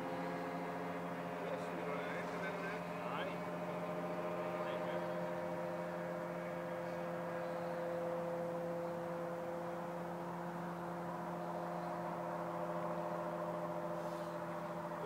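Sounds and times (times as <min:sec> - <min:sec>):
light aircraft engine droning: 0:00.0 - 0:15.0.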